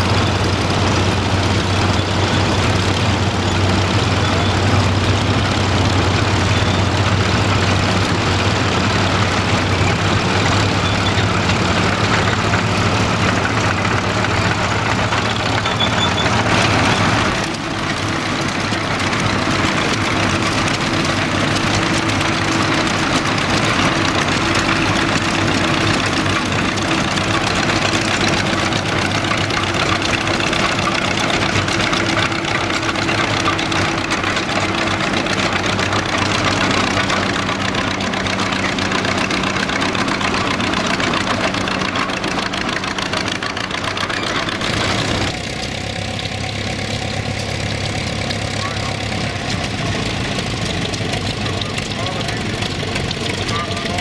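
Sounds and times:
crawler tractor engine running: 0.0 - 54.0
engine idling: 0.0 - 54.0.

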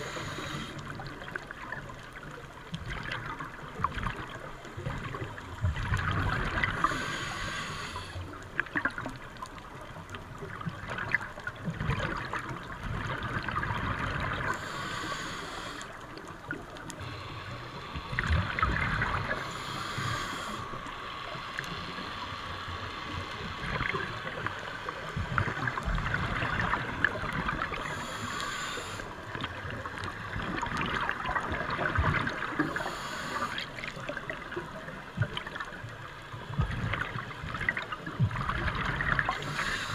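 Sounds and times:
diver's exhaled bubbles gurgling: 0.0 - 7.1, 8.5 - 14.8, 18.0 - 20.6, 23.1 - 28.4, 29.2 - 35.8, 36.4 - 39.9
underwater rushing water: 0.0 - 39.9.

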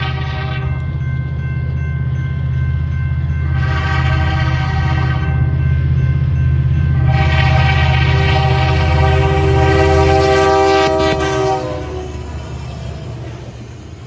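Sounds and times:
locomotive air horn blowing: 0.0 - 0.8, 3.5 - 5.6, 7.0 - 12.5
locomotive low rumble: 0.0 - 14.0.

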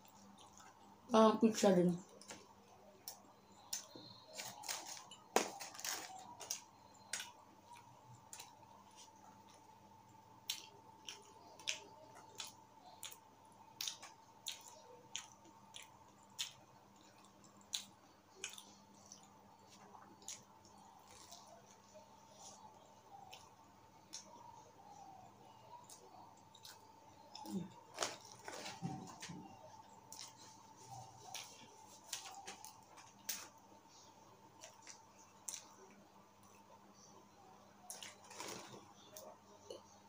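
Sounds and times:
mouth chewing food: 0.0 - 1.0, 10.4 - 36.8
faint steady hum: 0.0 - 40.0.

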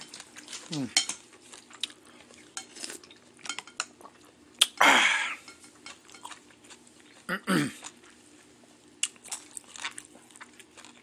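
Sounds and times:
spoon and chopsticks clinking on bowl: 0.0 - 1.2, 2.6 - 3.9, 5.4 - 6.4.

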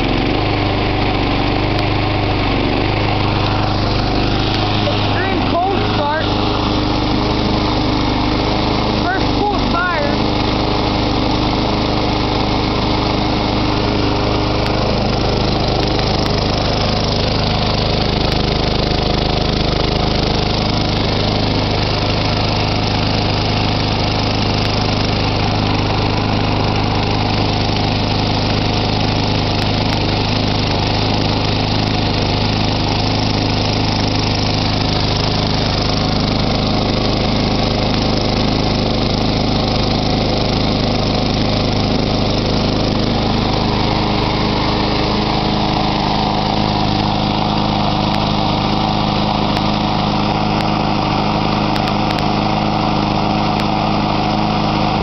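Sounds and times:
lawn mower engine running: 0.0 - 55.0.

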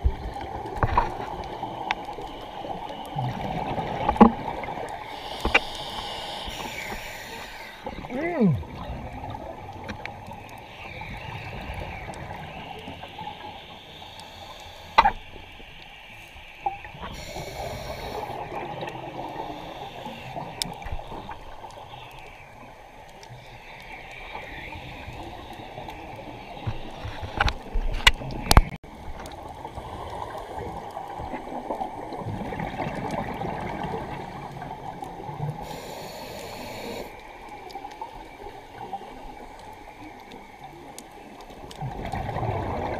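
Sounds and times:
bubbles gurgling and hissing: 0.0 - 42.9
scuba regulator breathing: 5.0 - 8.6, 10.6 - 21.1, 35.6 - 37.3.

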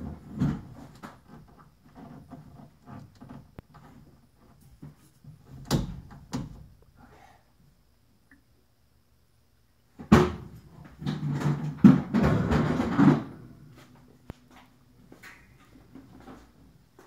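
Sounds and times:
knocks and bumps: 10.0 - 13.5.

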